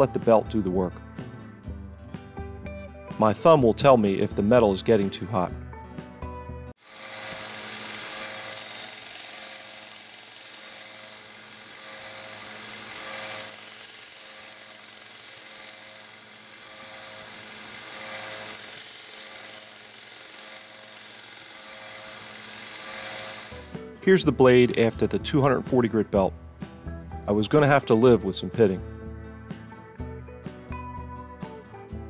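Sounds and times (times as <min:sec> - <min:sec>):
belt sander motor hum: 0:06.8 - 0:23.8
blade grinding hiss: 0:06.8 - 0:23.8.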